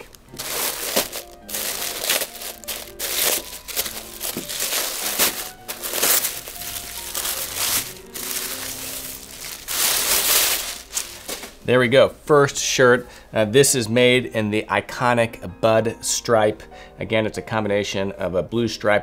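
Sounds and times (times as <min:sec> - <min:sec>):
tissue paper crinkling: 0:00.0 - 0:11.6
soft background music: 0:00.0 - 0:19.0.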